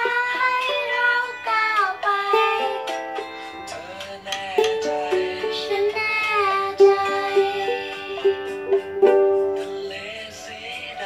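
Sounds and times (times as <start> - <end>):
child singing: 0.0 - 3.0, 3.7 - 8.6
ukulele strumming: 0.0 - 11.0.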